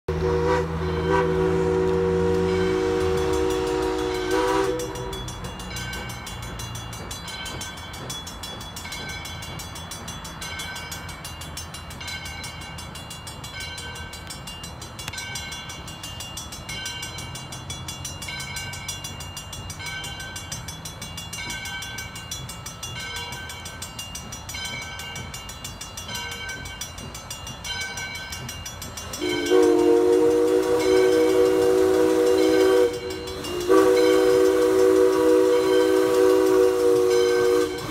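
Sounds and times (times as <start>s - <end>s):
steam locomotive whistle: 0.1s - 5.4s, 29.2s - 37.9s
bell ringing: 2.5s - 36.2s.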